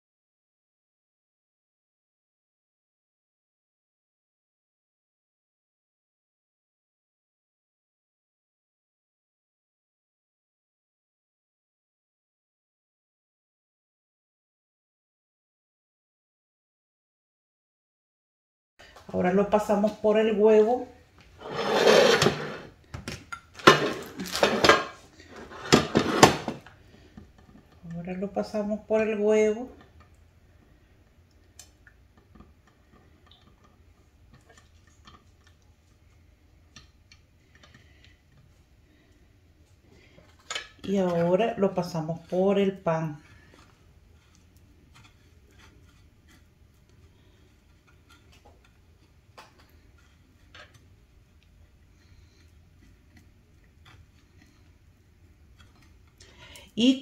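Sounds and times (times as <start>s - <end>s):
hands pressing patty in breadcrumbs: 33.8s - 56.4s.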